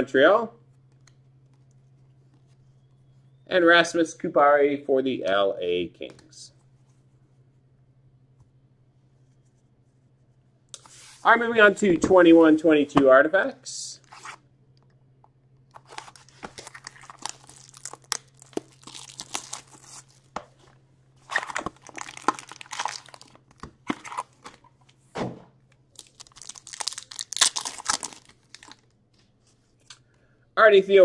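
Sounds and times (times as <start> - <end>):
cellophane wrap tearing: 15.8 - 20.3, 21.2 - 24.6, 25.9 - 28.9
foil packs crinkling: 15.8 - 20.4, 21.2 - 24.8, 25.9 - 28.9.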